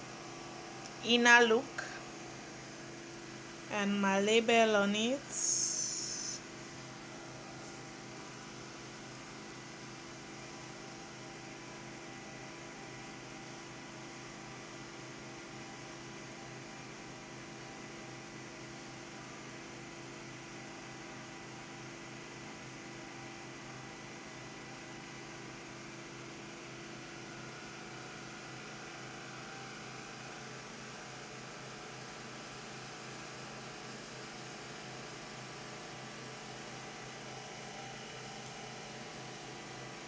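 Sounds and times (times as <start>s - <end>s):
steady hum and hiss: 0.0s - 40.0s.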